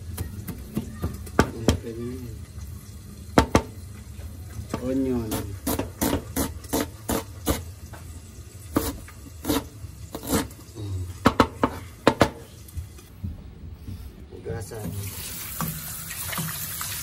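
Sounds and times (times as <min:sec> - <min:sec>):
knife chopping on cutting board: 0:05.3 - 0:07.6.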